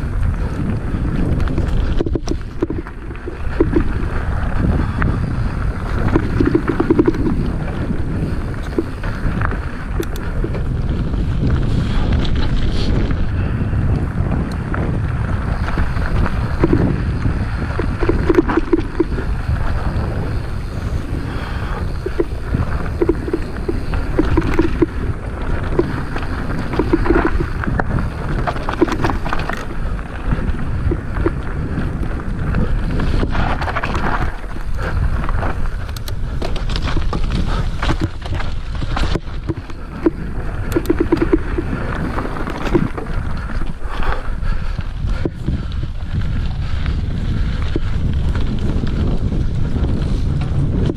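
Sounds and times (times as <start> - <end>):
bike rattling over rough ground: 0.0 - 50.9
wind buffeting microphone: 0.0 - 50.9
tyres on dirt and leaves: 14.7 - 44.4.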